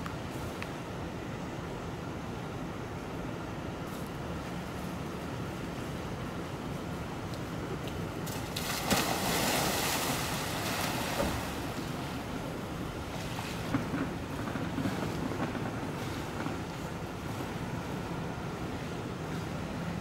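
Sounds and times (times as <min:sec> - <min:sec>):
steady background hiss: 0:00.0 - 0:20.0
hippopotamus splashing into water: 0:08.2 - 0:12.2
water churning and sloshing: 0:08.2 - 0:17.6.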